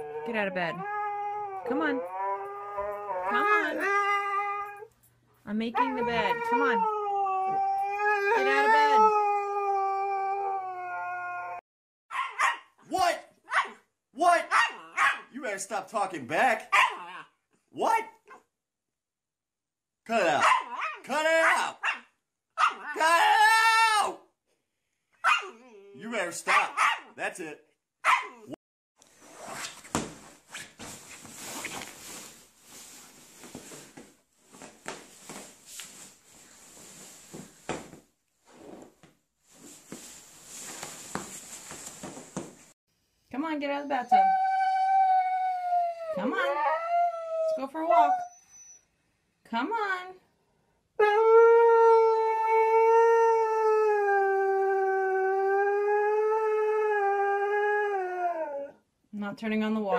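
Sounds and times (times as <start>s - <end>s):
dog howling: 0.0s - 4.9s, 5.8s - 11.6s
soft knocks and scrapes: 29.7s - 42.7s.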